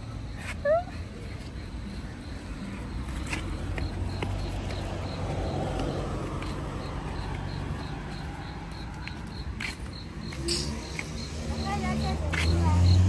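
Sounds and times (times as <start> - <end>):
cricket chirping: 0.0 - 13.0
footsteps on dirt path: 3.0 - 11.2, 11.8 - 12.8.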